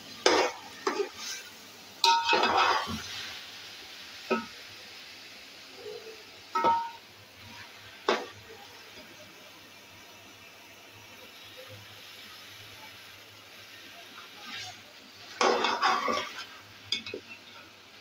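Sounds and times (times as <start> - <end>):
frying hiss: 0.0 - 18.0
metal spoon clanking in pot: 2.0 - 2.6, 6.6 - 7.0.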